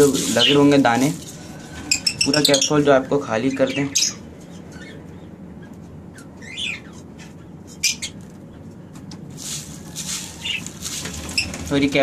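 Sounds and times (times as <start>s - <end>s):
low steady background noise: 0.0s - 12.0s
parrots chirping: 1.6s - 8.8s, 10.3s - 11.6s.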